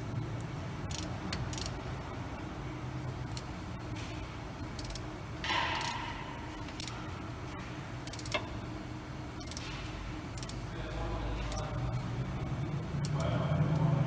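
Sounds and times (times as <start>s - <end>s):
shop hum: 0.0s - 14.0s
hand ratchet clicking: 0.9s - 1.8s, 4.8s - 5.0s, 8.0s - 8.5s, 9.4s - 9.6s, 10.3s - 10.6s.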